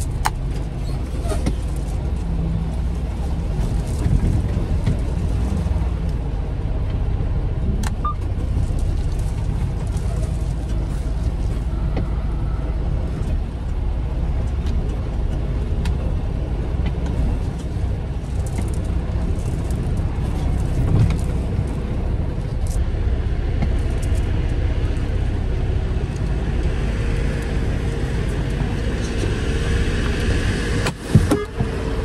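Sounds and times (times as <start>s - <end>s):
truck engine and road rumble: 0.0s - 32.0s.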